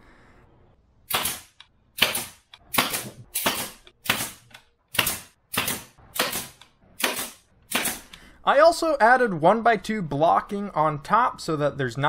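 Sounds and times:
nail gun firing sharp cracks: 1.1 - 8.2.

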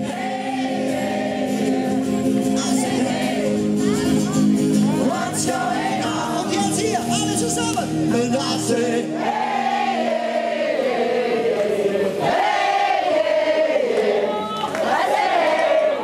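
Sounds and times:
live band music: 0.0 - 8.9
person singing with guitar: 0.0 - 12.2
crowd singing along: 0.0 - 16.0.

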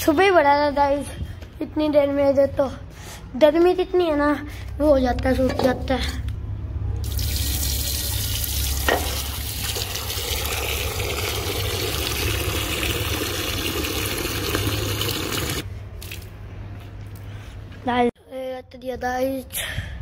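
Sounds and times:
water pouring into soil: 7.0 - 16.3.

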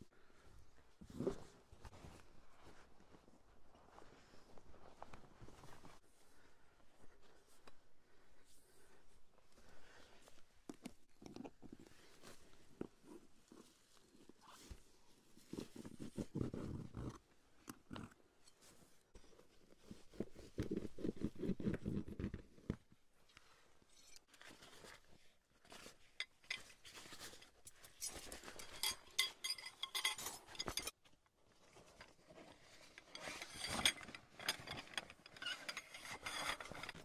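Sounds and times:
cups and utensils clinking: 28.6 - 31.0.

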